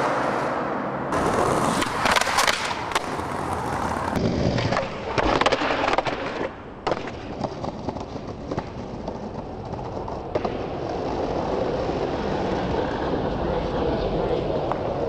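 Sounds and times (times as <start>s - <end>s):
skateboard clattering: 0.0s - 15.0s
skateboard wheels rolling on brick: 0.0s - 15.0s.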